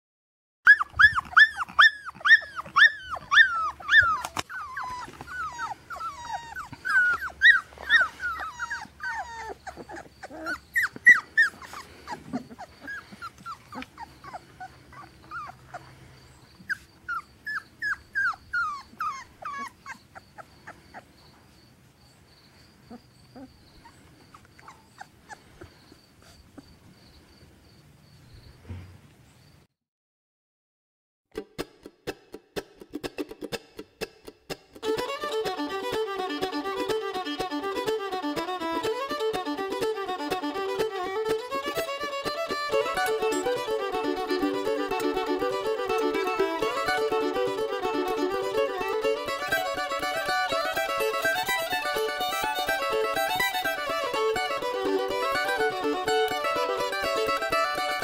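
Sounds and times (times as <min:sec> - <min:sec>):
puppies whining and yelping: 0:00.7 - 0:21.6, 0:22.8 - 0:26.9, 0:40.8 - 0:58.0.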